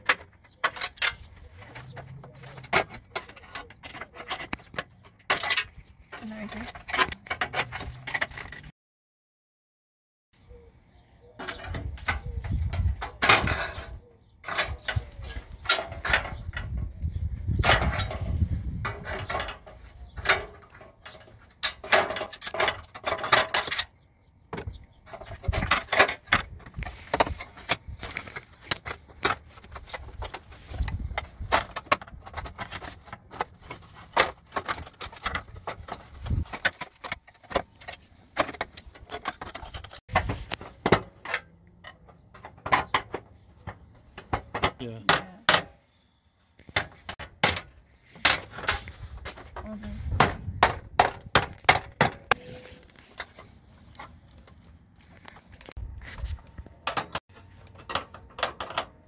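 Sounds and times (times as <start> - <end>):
clicks knocks and rattles: 0.0 - 8.7, 56.4 - 59.0.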